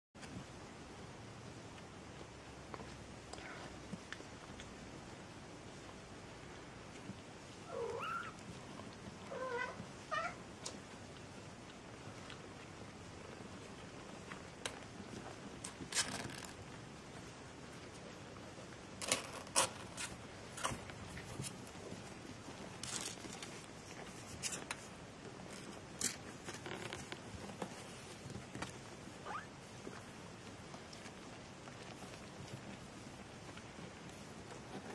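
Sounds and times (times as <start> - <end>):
small scratches and clicks: 6.9 - 34.9.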